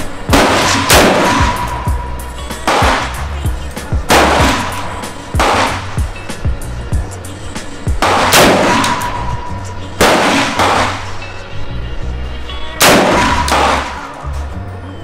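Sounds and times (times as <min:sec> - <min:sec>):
background music: 0:00.0 - 0:15.0
rifle shots with ringing echo: 0:00.3 - 0:02.0, 0:02.6 - 0:03.2, 0:04.1 - 0:05.9, 0:08.0 - 0:09.2, 0:10.0 - 0:11.1, 0:12.8 - 0:14.1.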